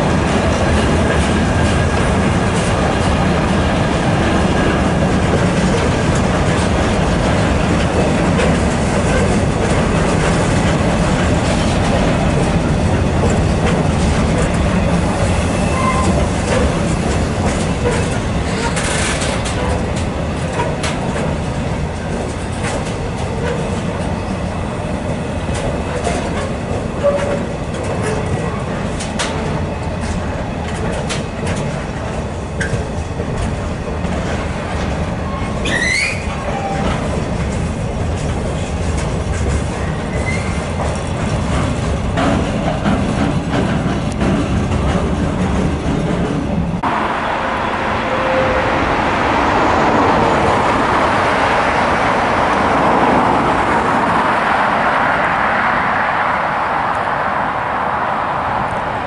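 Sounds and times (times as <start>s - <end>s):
wheels clicking over rail joints: 0.0s - 46.9s
train wheels rumbling on rails: 0.0s - 59.0s.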